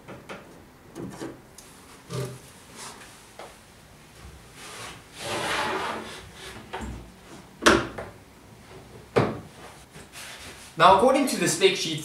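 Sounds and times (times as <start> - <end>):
wooden panel scraping on wood: 4.6 - 6.7.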